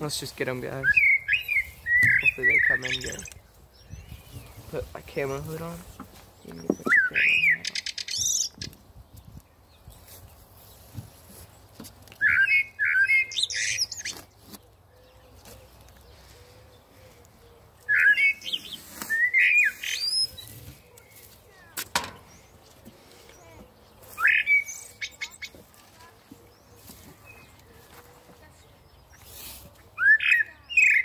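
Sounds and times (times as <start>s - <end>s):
bird calls from speaker: 0.8s - 3.4s, 6.4s - 8.7s, 12.2s - 14.2s, 17.4s - 22.5s, 23.2s - 25.6s, 30.0s - 31.0s.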